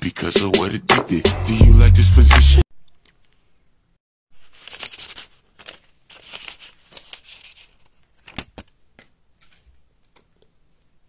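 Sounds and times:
paper rustling and crinkling: 0:04.3 - 0:10.2.

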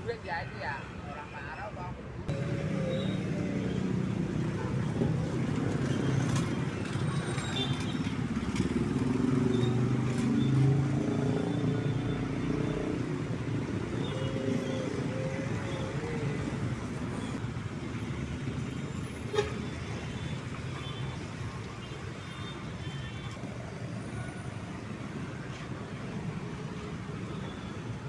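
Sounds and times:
vehicle engines passing: 0:01.6 - 0:22.3.

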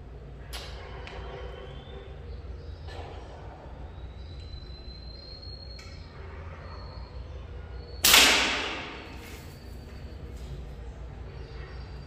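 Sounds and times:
slingshot firing crack: 0:08.0 - 0:09.3.

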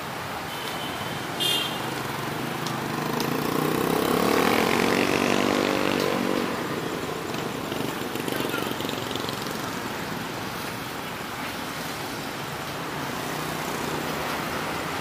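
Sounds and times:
street traffic: 0:00.0 - 0:15.0
motorcycle passing by: 0:01.8 - 0:10.7, 0:12.8 - 0:15.0.

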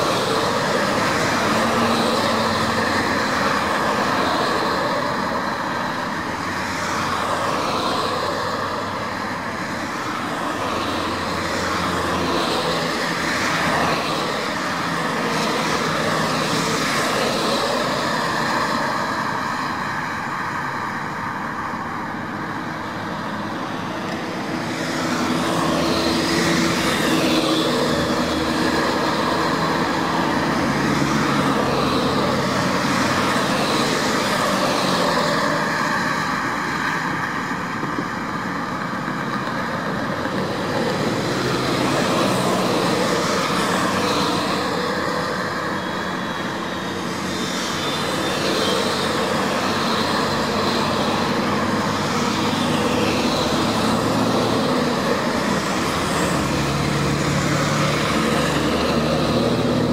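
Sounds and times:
vehicle engine and road noise: 0:00.0 - 0:59.9.

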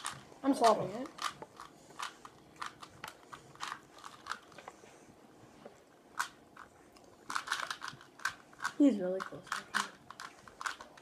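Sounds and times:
puzzle cube clicking: 0:07.3 - 0:11.0.

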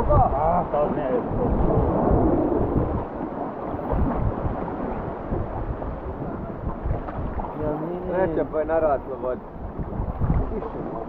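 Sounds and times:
rushing river water: 0:00.0 - 0:11.0
wind buffeting microphone: 0:00.0 - 0:11.0.

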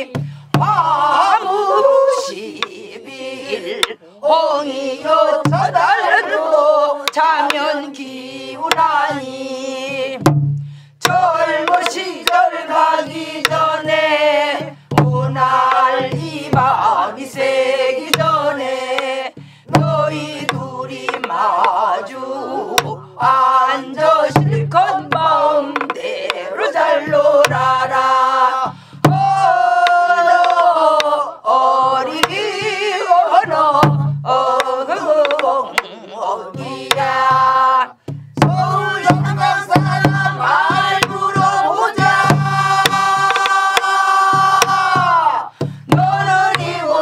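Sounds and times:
group singing along: 0:00.0 - 0:10.3, 0:11.0 - 0:47.0
woman singing with vibrato: 0:00.0 - 0:10.3, 0:11.0 - 0:47.0
low drum thumps: 0:00.1 - 0:01.3, 0:05.4 - 0:05.8, 0:09.8 - 0:18.4, 0:19.3 - 0:21.8, 0:22.8 - 0:26.0, 0:27.0 - 0:31.0, 0:33.6 - 0:35.9, 0:36.5 - 0:47.0
drum stick clicks: 0:20.4 - 0:21.8, 0:25.8 - 0:26.4, 0:35.2 - 0:36.0, 0:42.8 - 0:43.9.

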